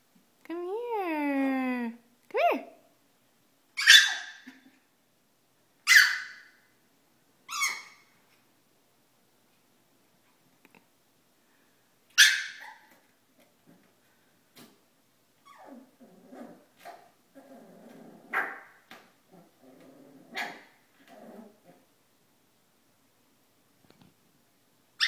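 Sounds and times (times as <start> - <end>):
dog screaming and whining: 3.8 - 4.6, 5.9 - 6.6, 7.5 - 8.1, 12.2 - 13.0, 15.4 - 17.1, 20.3 - 20.8
dog yelps: 3.8 - 4.6, 5.9 - 6.6, 7.5 - 8.1, 12.2 - 13.0, 18.3 - 18.7.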